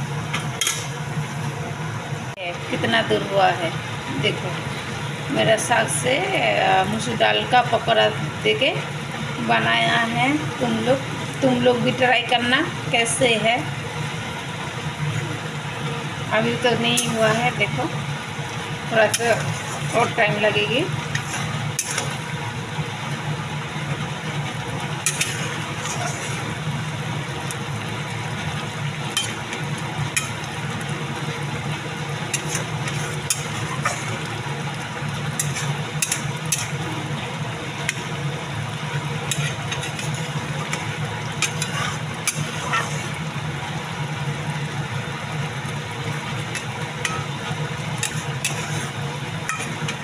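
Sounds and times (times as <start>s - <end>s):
gravy simmering: 0.0s - 50.0s
metal spatula scraping a pan: 16.7s - 17.8s, 19.0s - 22.2s, 25.0s - 26.6s, 29.1s - 29.4s, 30.1s - 30.4s, 32.3s - 34.3s, 35.3s - 36.8s, 39.2s - 43.2s, 46.5s - 47.3s, 47.9s - 50.0s.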